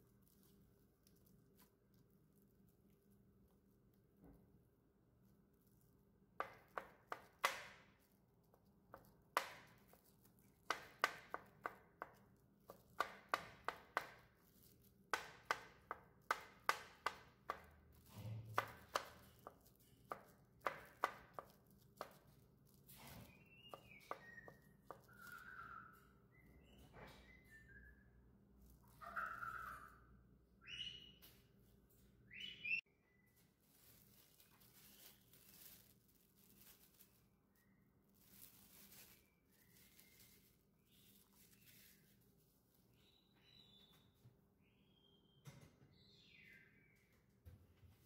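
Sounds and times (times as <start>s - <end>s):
bird chirping: 23.1s - 31.5s, 32.3s - 33.4s, 42.9s - 47.4s.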